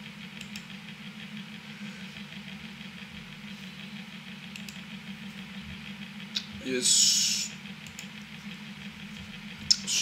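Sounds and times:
low hum with hiss: 0.0 - 10.0
mouse clicks: 4.5 - 4.8.

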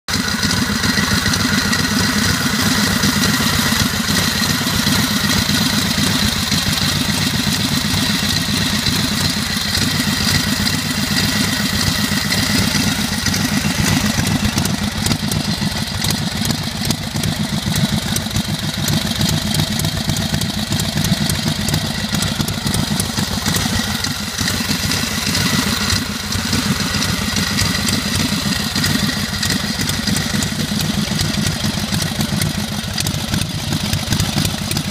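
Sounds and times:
motorcycle engine running: 0.0 - 34.9.

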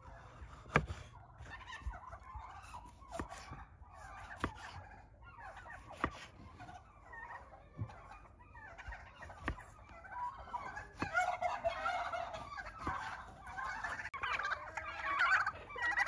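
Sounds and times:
turkeys gobbling: 0.0 - 16.0
knife cutting tomato on board: 0.2 - 1.5, 2.9 - 3.6, 4.2 - 4.8, 5.8 - 6.5, 9.4 - 9.7.

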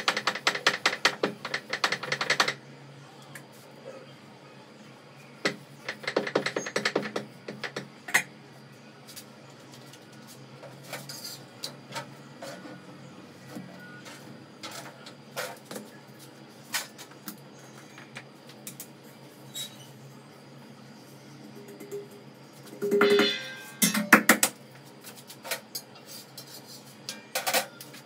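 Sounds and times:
utensils knocking and clinking: 22.8 - 24.5.

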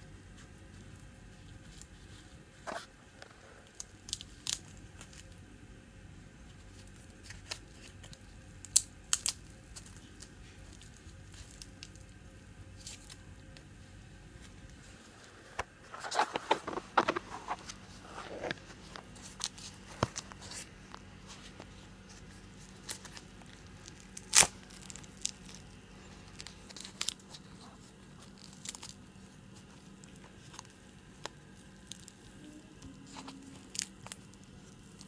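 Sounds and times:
wrapping crinkling: 6.5 - 13.6, 14.4 - 35.0
sharp crack: 24.1 - 25.6.

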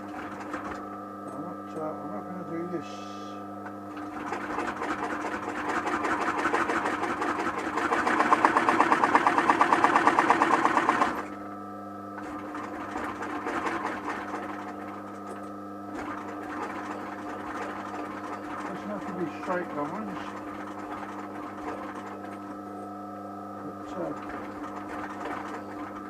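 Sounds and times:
motor hum: 0.0 - 26.0
sewing machine stitching: 4.0 - 11.3, 12.2 - 22.6, 23.8 - 26.0.

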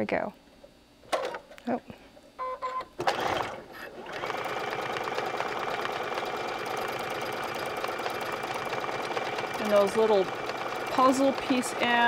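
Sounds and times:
sewing machine beeping: 2.4 - 12.0
sewing machine stitching: 3.0 - 12.0.

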